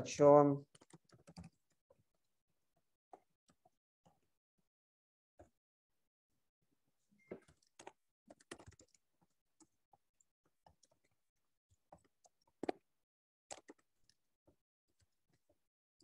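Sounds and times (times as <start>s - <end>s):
typing on keyboard: 0.6s - 1.7s, 7.4s - 9.0s, 13.5s - 13.9s.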